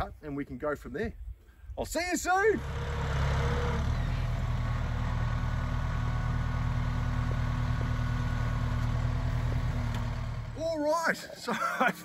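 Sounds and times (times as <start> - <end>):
tractor diesel engine under load: 2.5 - 12.0.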